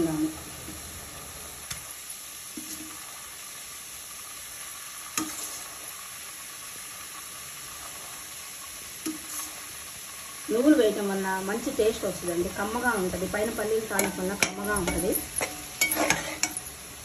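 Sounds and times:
paste sizzling in a pot: 0.0 - 17.0
rice spooned into pot: 1.7 - 10.6, 13.4 - 17.0
spoon knocking against pot: 14.0 - 16.6.

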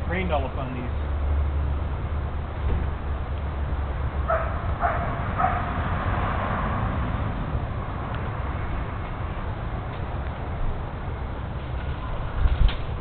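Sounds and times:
dog barking: 4.3 - 5.7.

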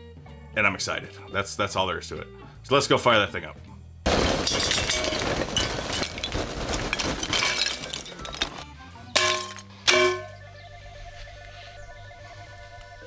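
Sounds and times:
background music: 0.0 - 5.2, 6.9 - 13.0
charcoal pouring into metal basket: 4.1 - 10.2.

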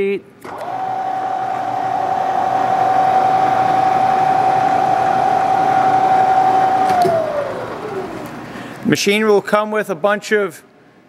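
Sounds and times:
mill spindle whining: 0.4 - 8.6.

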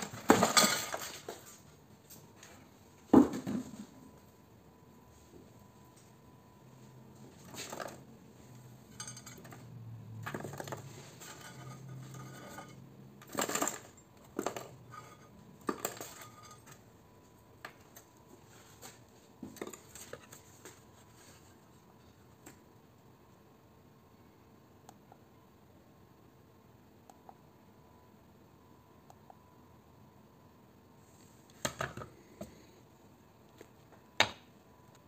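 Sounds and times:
copper wire rustling and clinking: 7.2 - 16.9.

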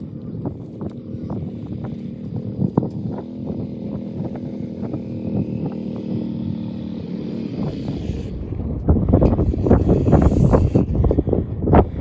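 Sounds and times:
utility vehicle engine running: 0.0 - 12.0.

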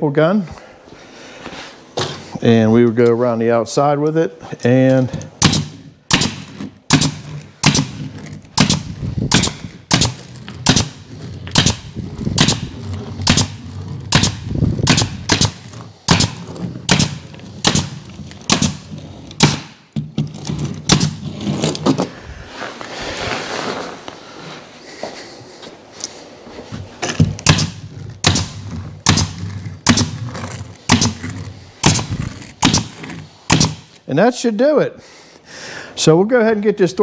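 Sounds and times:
pneumatic staple gun firing: 5.4 - 19.8, 27.4 - 30.2, 30.9 - 34.0.

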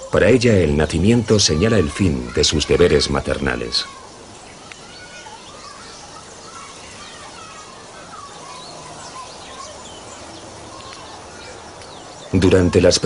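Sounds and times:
birds chirping and twittering: 0.0 - 13.0
steady background hiss: 0.0 - 13.0.

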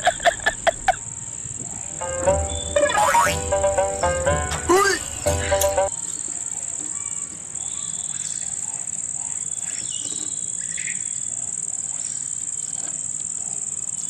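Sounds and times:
insects droning: 0.0 - 14.0
bird chirps: 1.7 - 3.4.

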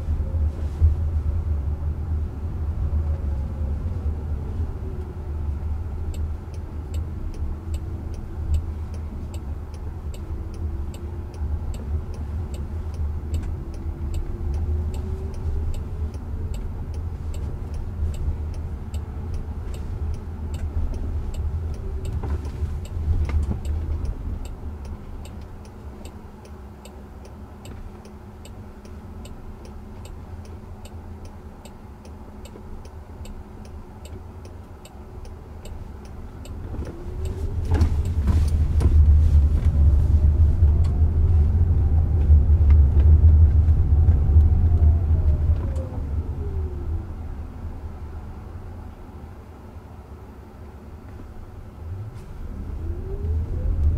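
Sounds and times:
road and tyre rumble: 0.0 - 53.9
turn signal indicator clicking: 5.9 - 38.9.

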